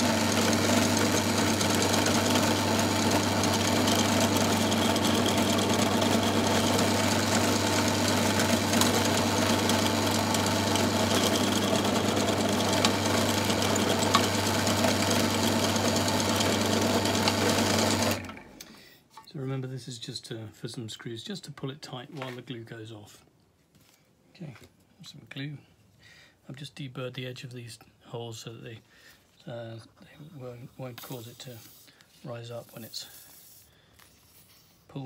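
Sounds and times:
drill press motor drilling wood: 0.0s - 18.5s.

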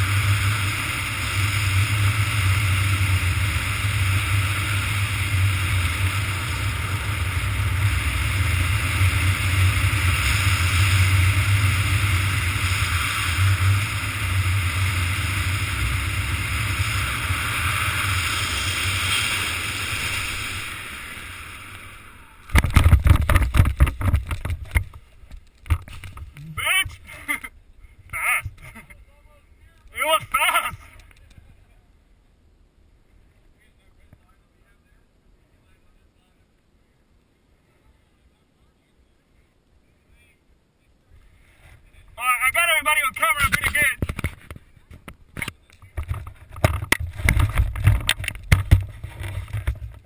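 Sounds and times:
wind rushing over microphone: 0.0s - 25.0s
loud rapid buffeting and knocks: 22.5s - 26.4s, 45.9s - 50.0s.

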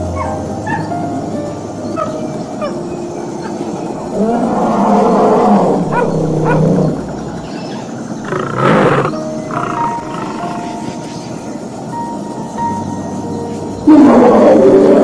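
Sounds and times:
tiger roar: 4.1s - 7.4s, 8.2s - 11.0s, 13.9s - 15.0s.

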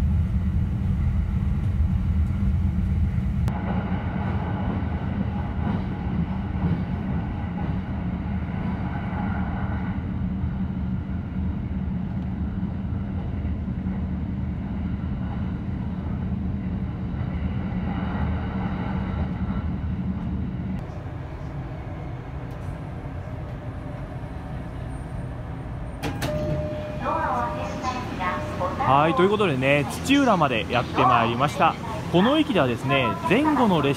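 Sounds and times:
train rumble and hum: 0.0s - 33.9s.

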